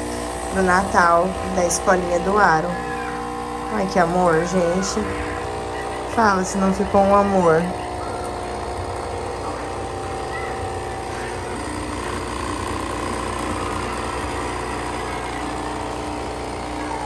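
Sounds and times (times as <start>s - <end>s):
coffee machine pump buzzing: 0.0s - 17.0s.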